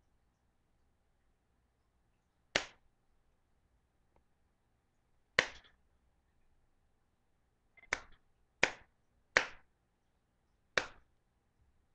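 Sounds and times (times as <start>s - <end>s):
hand smacking a device: 2.6s - 2.8s, 5.4s - 5.8s, 7.8s - 9.7s, 10.8s - 11.1s.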